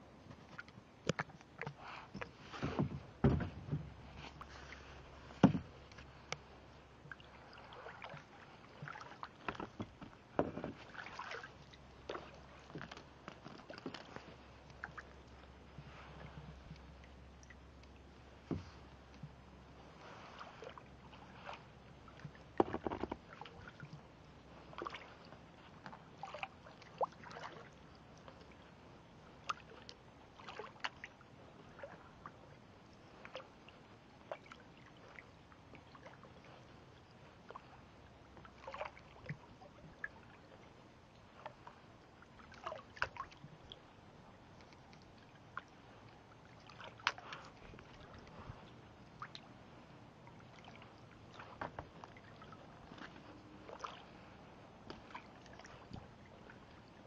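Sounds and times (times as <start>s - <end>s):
water lapping: 0.0s - 57.0s
small splashes and drips: 4.2s - 9.8s, 10.7s - 32.5s, 33.1s - 43.9s, 44.5s - 57.0s.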